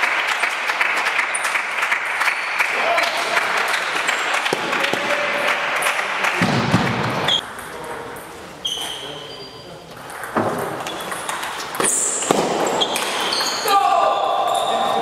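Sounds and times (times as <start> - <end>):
spectators applauding: 0.0 - 7.3
short high squeaks: 8.6 - 9.8, 11.9 - 13.7.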